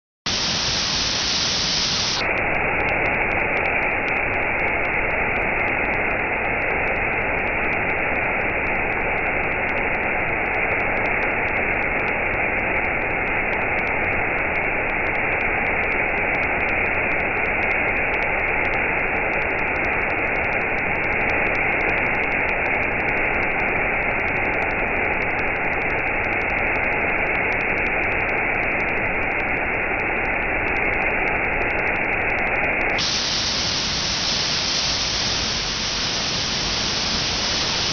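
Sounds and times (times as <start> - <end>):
waterfall rushing: 0.3 - 2.2, 33.0 - 37.9.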